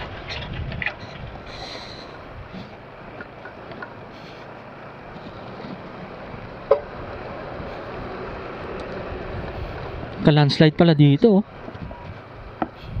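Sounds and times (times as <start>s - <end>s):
wind on microphone: 0.0s - 2.7s, 7.5s - 10.3s, 11.7s - 13.0s
scooter engine running: 0.0s - 13.0s.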